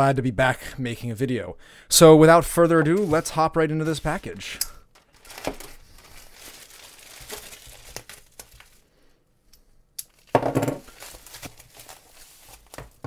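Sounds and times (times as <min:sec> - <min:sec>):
plastic and bubble wrap crinkling: 0:02.8 - 0:08.9, 0:10.1 - 0:13.0.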